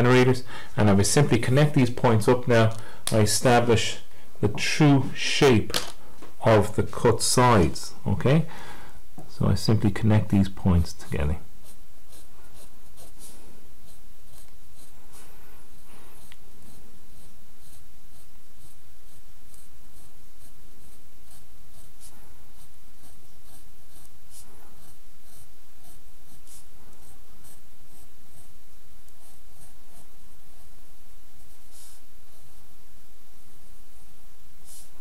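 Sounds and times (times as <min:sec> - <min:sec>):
steady low hum: 0:00.0 - 0:35.0
pencil scratching on paper: 0:10.9 - 0:32.7, 0:34.6 - 0:35.0.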